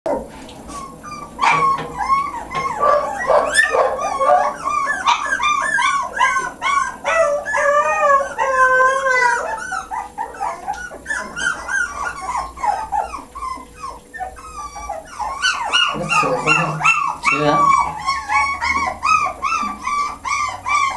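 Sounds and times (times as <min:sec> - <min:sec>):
puppy whining and yipping: 0:00.1 - 0:20.9.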